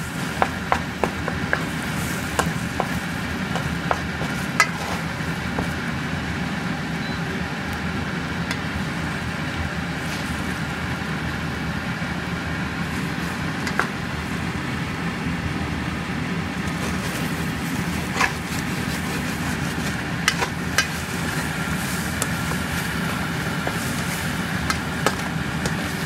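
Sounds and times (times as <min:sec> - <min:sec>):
spatula scraping a pan: 0:00.0 - 0:05.8, 0:16.7 - 0:26.0
eggs frying in a pan: 0:00.0 - 0:06.4, 0:16.8 - 0:26.0
steady hum: 0:00.0 - 0:26.0
spatula knocking against pan: 0:24.6 - 0:25.8.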